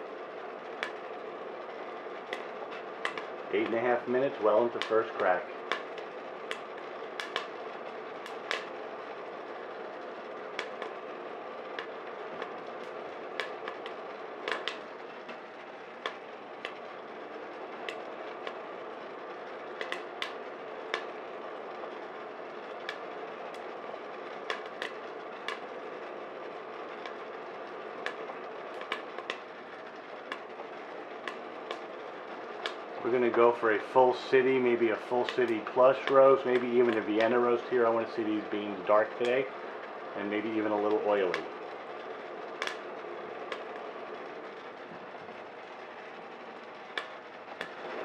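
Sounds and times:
oven fan whirring: 0:00.0 - 0:48.0
coffee beans cracking: 0:11.8 - 0:15.4.

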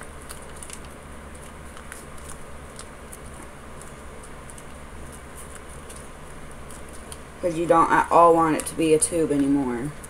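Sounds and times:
paper tube crinkling: 0:00.0 - 0:07.3
steady low hum: 0:00.0 - 0:10.0.

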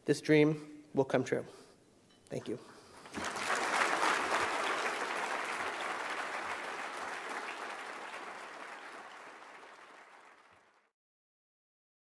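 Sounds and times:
audience applauding: 0:03.0 - 0:10.9.

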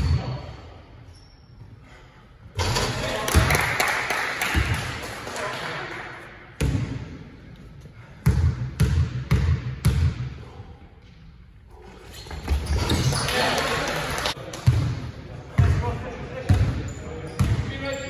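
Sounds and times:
basketball bouncing on hall floor: 0:06.6 - 0:07.2, 0:08.0 - 0:10.6, 0:14.5 - 0:17.7.

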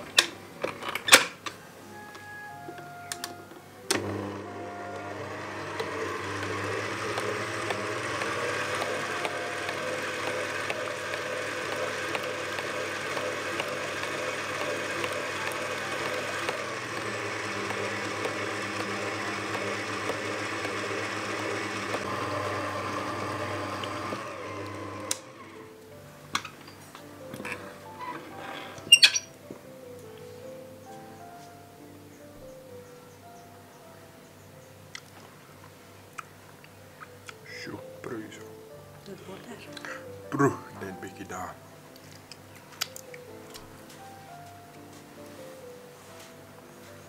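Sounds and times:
stand mixer motor running: 0:03.9 - 0:25.8.

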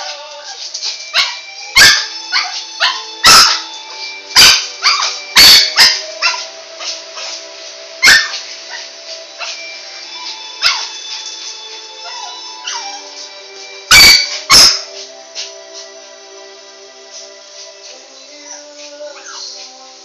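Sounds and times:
dog barking: 0:01.2 - 0:03.7, 0:04.4 - 0:07.3, 0:08.0 - 0:08.8, 0:10.6 - 0:10.9, 0:13.9 - 0:14.9.

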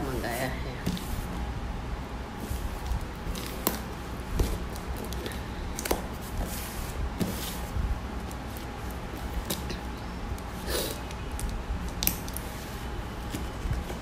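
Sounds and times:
steady low hum: 0:00.0 - 0:14.0
scissors snipping packing tape: 0:10.4 - 0:12.5.

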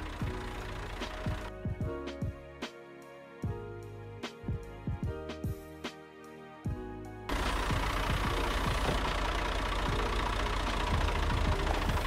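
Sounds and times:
tractor engine idling: 0:00.0 - 0:01.5, 0:07.3 - 0:12.0.

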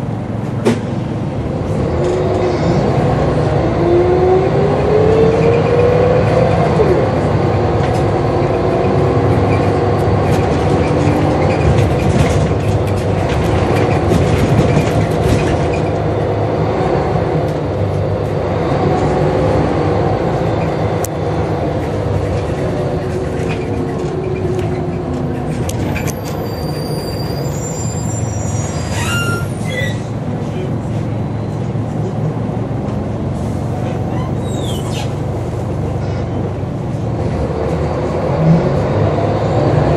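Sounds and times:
bus diesel engine running: 0:00.0 - 0:39.9
high brake squeal: 0:26.1 - 0:30.2, 0:34.1 - 0:35.2.

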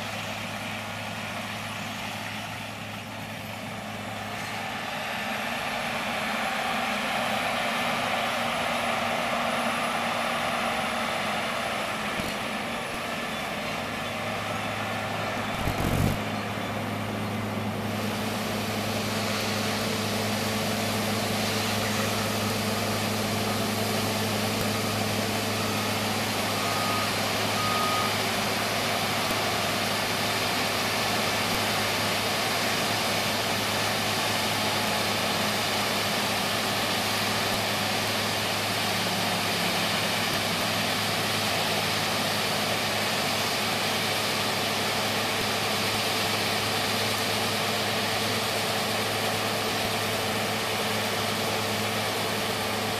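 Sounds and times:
combine harvester machinery drone: 0:00.0 - 0:52.9
short high beeps: 0:15.5 - 0:16.2, 0:24.6 - 0:28.2.

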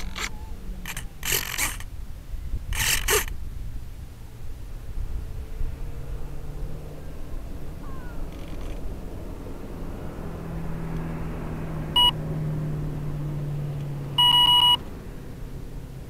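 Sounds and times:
loud electronic beeps: 0:12.0 - 0:12.2, 0:14.2 - 0:14.8.

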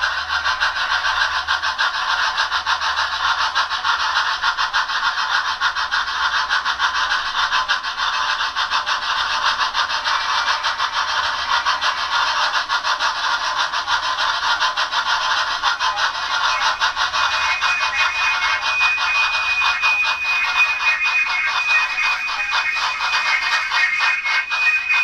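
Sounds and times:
model train wheels rattling: 0:00.0 - 0:25.0
steam exhaust chuffs from speaker: 0:00.0 - 0:25.0.

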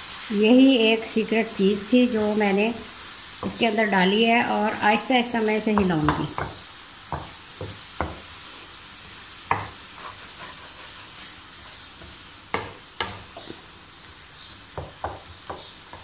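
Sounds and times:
food sizzling in a frying pan: 0:00.0 - 0:16.0
spatula scraping a pan: 0:07.6 - 0:13.7.

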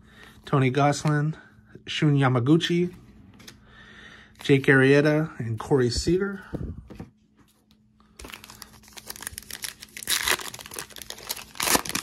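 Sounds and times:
wrapper tearing and crinkling: 0:08.2 - 0:12.0.

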